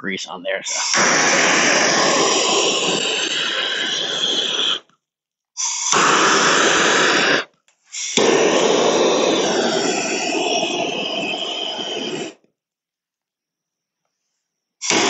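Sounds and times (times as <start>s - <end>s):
propane torch hissing: 0.6s - 4.9s, 5.6s - 12.4s.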